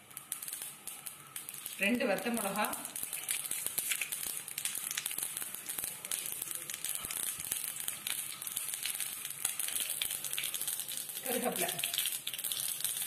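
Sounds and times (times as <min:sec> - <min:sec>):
oil sizzling: 0:00.0 - 0:13.0
seeds popping and crackling: 0:00.0 - 0:13.0.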